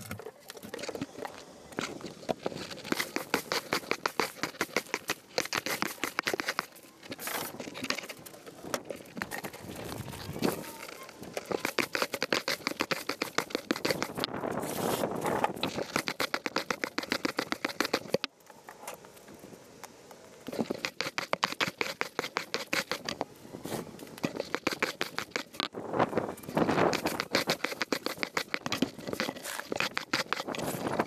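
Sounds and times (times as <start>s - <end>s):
push broom sweeping concrete: 2.7s - 8.2s, 26.7s - 31.0s.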